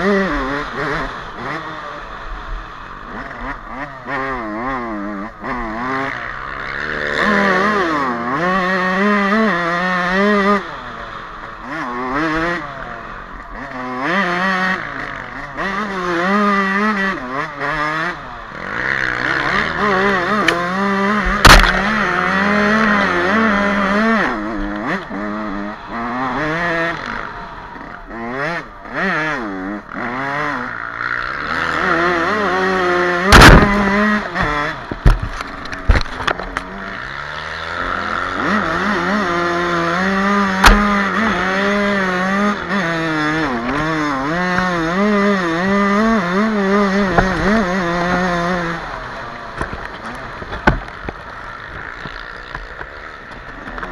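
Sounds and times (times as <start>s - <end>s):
two-stroke motorcycle engine revving: 0.0s - 53.9s
sharp knocks: 21.2s - 22.0s, 33.3s - 35.3s, 40.6s - 41.3s.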